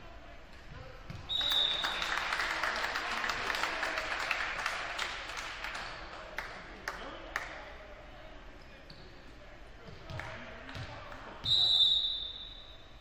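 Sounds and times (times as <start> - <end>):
spectators applauding: 1.4 - 7.0
referee's whistle blast: 11.4 - 12.9.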